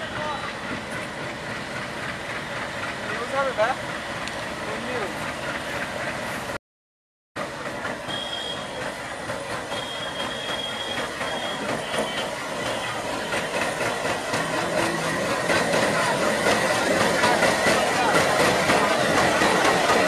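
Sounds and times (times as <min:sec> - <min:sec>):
diesel locomotive rumble: 0:00.0 - 0:06.6, 0:07.4 - 0:20.0
wheels clicking over rail joints: 0:07.4 - 0:20.0
high wheel squeal: 0:08.0 - 0:09.0, 0:09.6 - 0:13.5.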